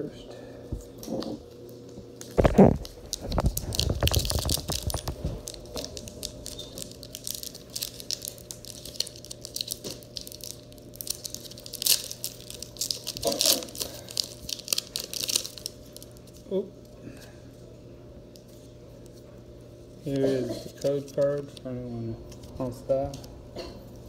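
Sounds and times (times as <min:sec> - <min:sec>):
foil wrapper crinkling and tearing: 0:02.2 - 0:16.5.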